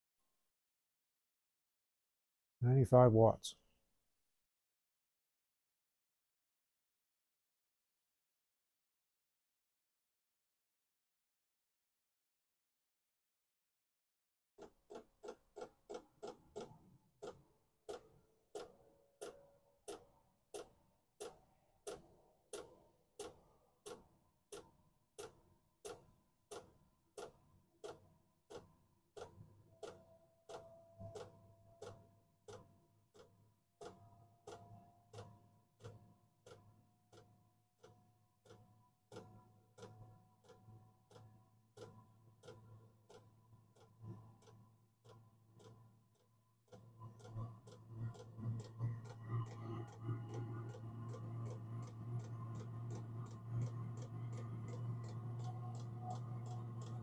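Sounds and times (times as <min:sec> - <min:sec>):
fuel pump ticking: 0:14.6 - 0:57.0.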